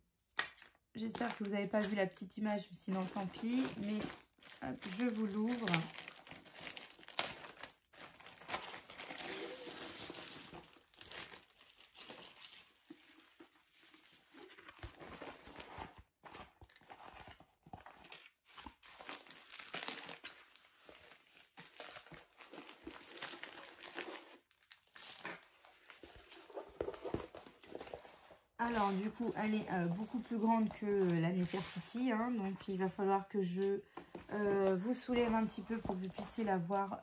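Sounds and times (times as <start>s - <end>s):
plastic wrapping crinkling: 0.4s - 37.0s
paper-covered roll rustling: 2.9s - 37.0s.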